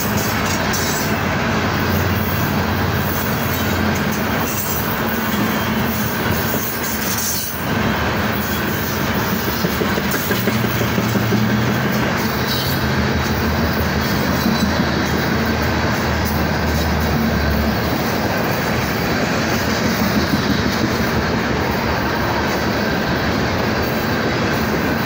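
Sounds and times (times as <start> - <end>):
steel wheels rumbling on rail: 0.0 - 25.0
sharp knocks of train cars: 9.1 - 13.5, 19.1 - 21.3.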